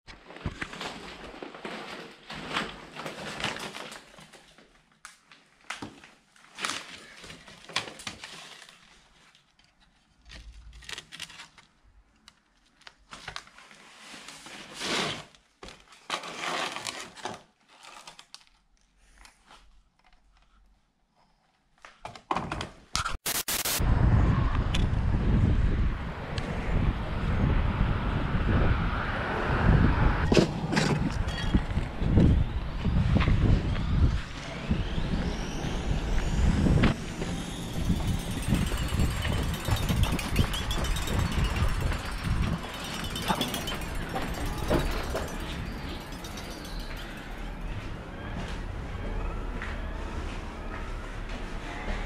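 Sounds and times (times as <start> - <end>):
knocks and clatters of objects: 37.2 - 47.3.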